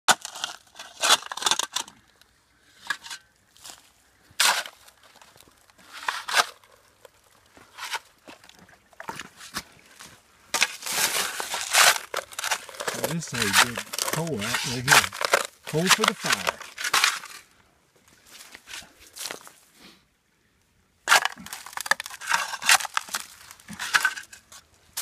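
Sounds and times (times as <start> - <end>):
shovel scraping into coal: 4.4 - 5.0, 5.8 - 6.6, 10.6 - 17.4, 21.1 - 25.0.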